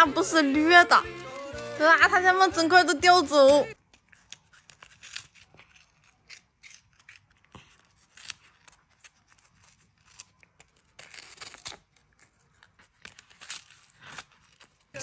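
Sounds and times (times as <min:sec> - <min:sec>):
cat crunching a treat: 0:03.8 - 0:15.0.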